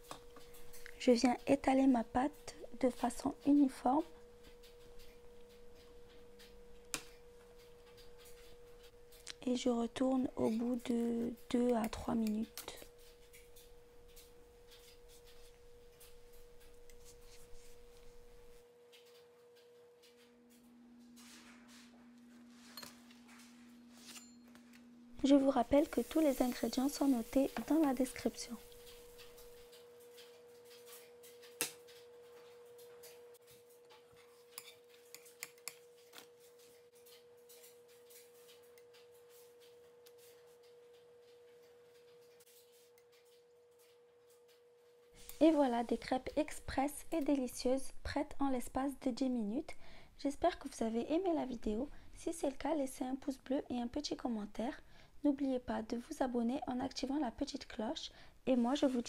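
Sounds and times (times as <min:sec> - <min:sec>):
crepe crackling in a pan: 0:00.0 - 0:01.7, 0:02.3 - 0:22.0, 0:25.2 - 0:48.3.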